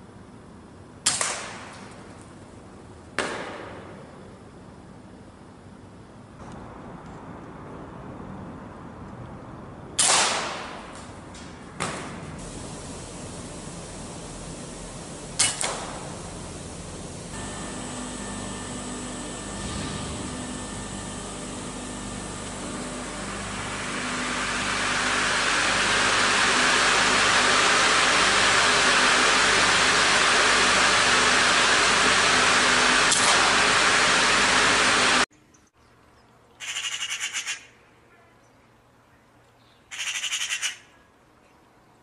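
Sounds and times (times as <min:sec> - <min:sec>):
harsh crow call: 0:36.6 - 0:37.7.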